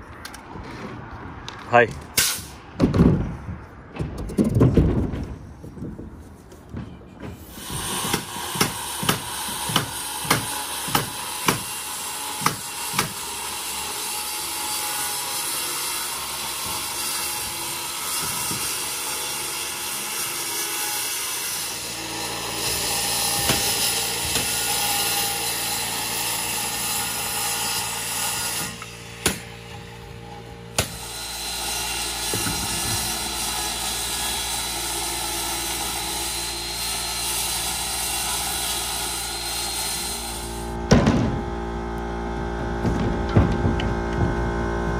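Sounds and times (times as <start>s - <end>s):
pneumatic nail gun shots: 2.2s - 2.6s, 7.4s - 11.8s
circular saw cutting plywood: 7.4s - 44.9s.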